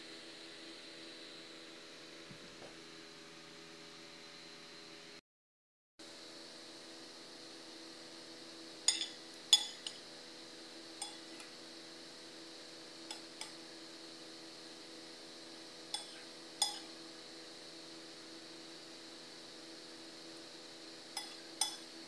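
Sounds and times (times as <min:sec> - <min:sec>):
faint steady hum: 0:06.0 - 0:22.0
metal spoon clinking on bowl: 0:08.9 - 0:10.0, 0:11.0 - 0:11.3, 0:16.0 - 0:16.9, 0:21.2 - 0:21.8.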